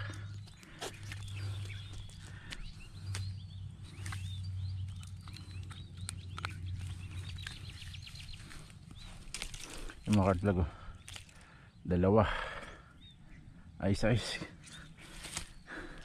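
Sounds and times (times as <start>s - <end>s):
small birds chirping: 0.0s - 16.0s
steady low hum: 0.0s - 16.0s.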